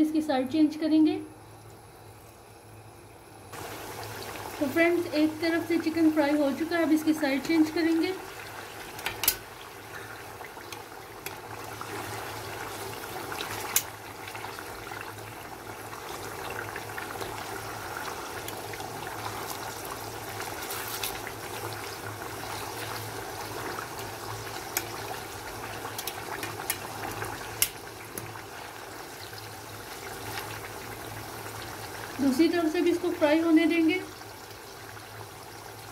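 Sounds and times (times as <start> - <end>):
chicken deep-frying in oil: 0.2 - 35.9
metal tongs clicking on pot: 9.0 - 9.4, 26.0 - 26.9, 27.6 - 28.3.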